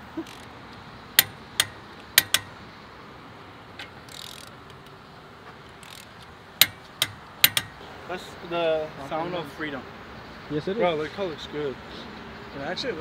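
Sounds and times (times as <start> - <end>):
torque wrench clicking: 0.2 - 2.6, 3.8 - 5.0, 5.8 - 7.8.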